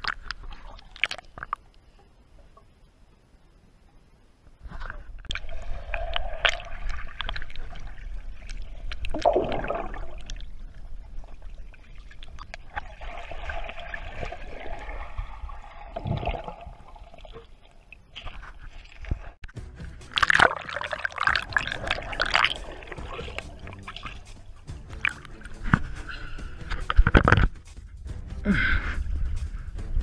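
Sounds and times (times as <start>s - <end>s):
water gurgling and splashing: 4.8s - 19.4s, 20.0s - 27.4s
low rumble: 19.5s - 30.0s
sharp clicks and knocks: 26.7s - 27.8s.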